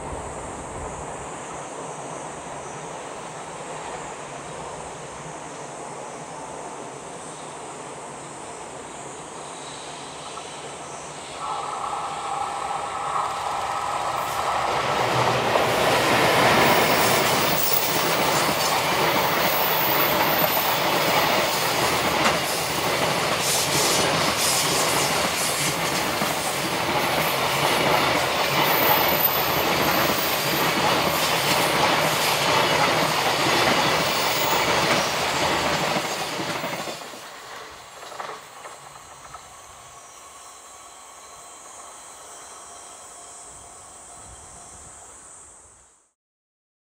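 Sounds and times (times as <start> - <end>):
locomotive high whine: 9.1 - 46.0
train wheels rumbling over rails: 10.1 - 41.0.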